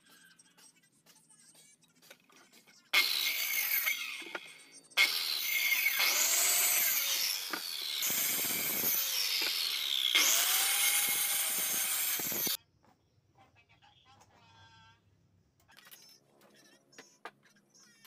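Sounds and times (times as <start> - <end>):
circular saw cutting wood: 3.0 - 12.6.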